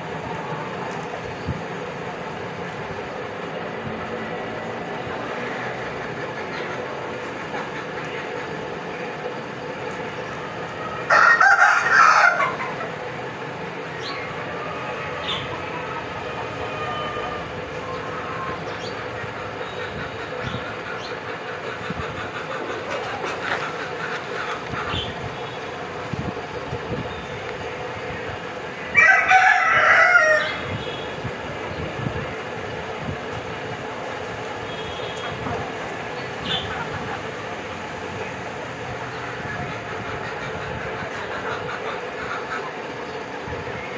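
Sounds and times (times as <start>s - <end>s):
rooster crowing: 11.0s - 12.8s, 28.9s - 30.8s.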